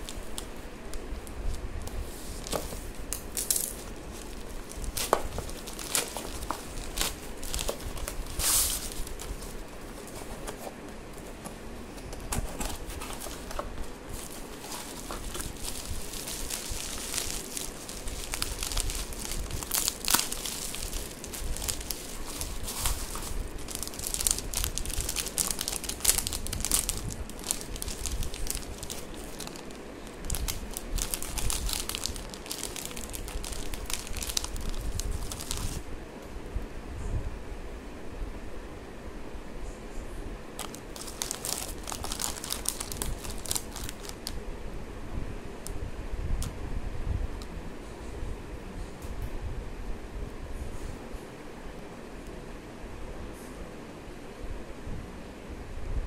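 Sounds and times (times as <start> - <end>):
plastic packaging crinkling: 0.0 - 35.9, 40.6 - 44.4.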